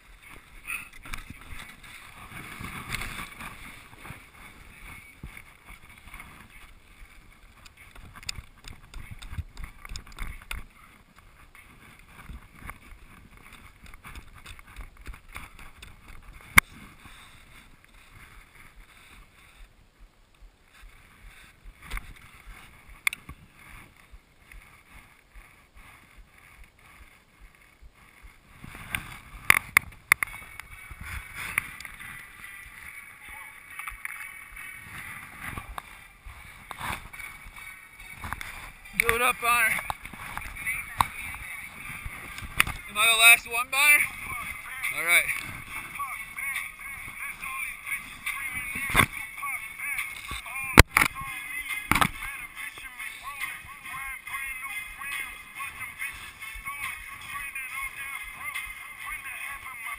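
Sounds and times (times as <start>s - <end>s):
ski poles clicking: 0.0s - 19.6s, 20.8s - 43.0s, 44.0s - 59.8s
skis scraping over snow: 0.0s - 19.7s, 20.7s - 59.9s
wind on microphone: 39.7s - 43.3s.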